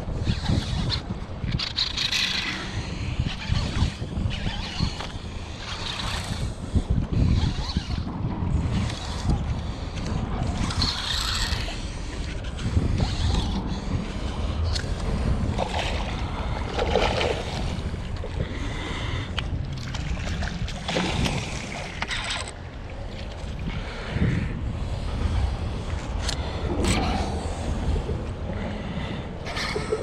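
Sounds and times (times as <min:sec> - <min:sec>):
wind buffeting microphone: 0:00.0 - 0:30.0
water slapping kayak hull: 0:13.6 - 0:23.7.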